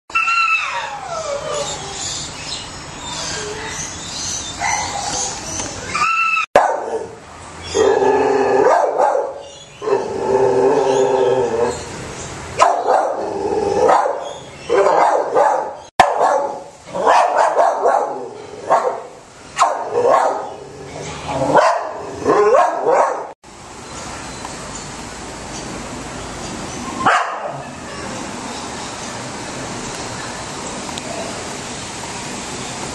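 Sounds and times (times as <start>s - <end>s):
dogs barking yipping and whining: 0.1s - 12.0s, 12.6s - 23.4s, 27.0s - 28.0s.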